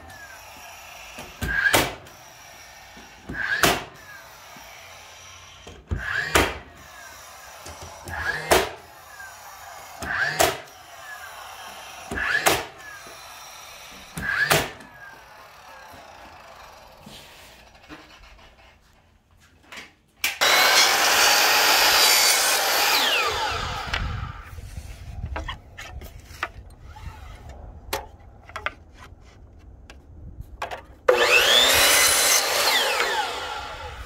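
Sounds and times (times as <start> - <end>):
nailer firing nails into wood: 1.2 - 2.2, 3.2 - 4.0, 5.6 - 6.7, 7.5 - 8.8, 10.0 - 10.8, 12.0 - 13.2, 14.0 - 14.9.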